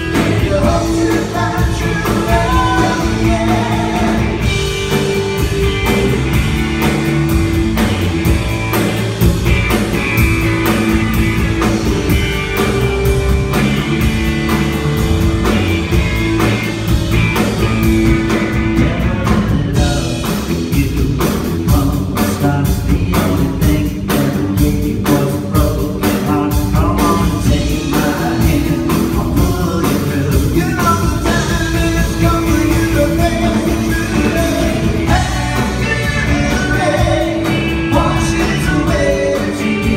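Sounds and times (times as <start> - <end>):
person singing: 0.0 - 4.9, 18.8 - 39.9
rock band playing: 0.0 - 39.9.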